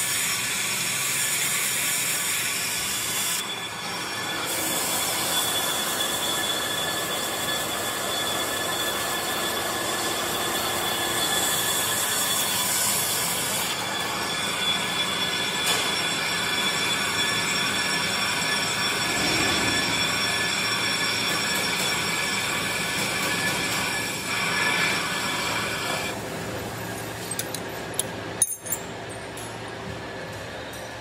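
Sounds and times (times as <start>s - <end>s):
rotor ringing squeal: 2.0s - 26.2s.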